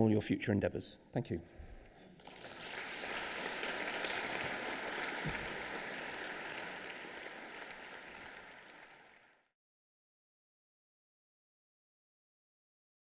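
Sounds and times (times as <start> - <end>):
audience applauding: 2.1 - 9.5.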